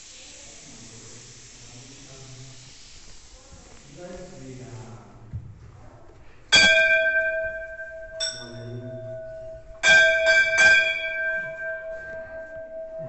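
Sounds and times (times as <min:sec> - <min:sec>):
temple bell ringing: 0:06.5 - 0:13.0.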